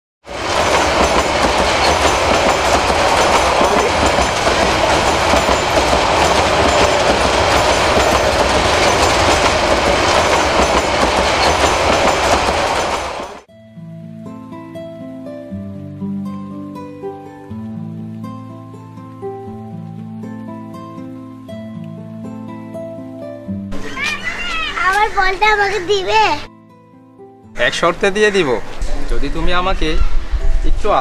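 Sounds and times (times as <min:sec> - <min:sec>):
train wheels rumbling on track: 0:00.2 - 0:13.5
gentle guitar music: 0:13.5 - 0:27.8.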